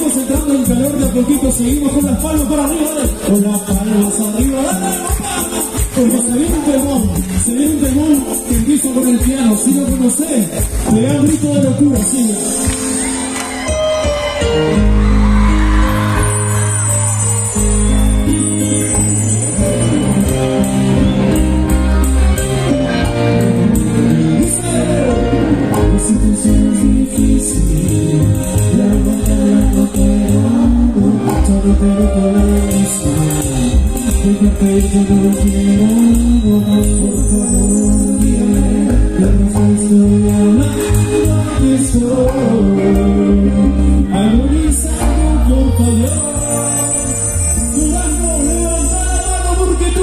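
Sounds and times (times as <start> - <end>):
bass and percussion beat: 0.0 - 50.0
keyboard: 0.0 - 50.0
person singing: 23.2 - 50.0.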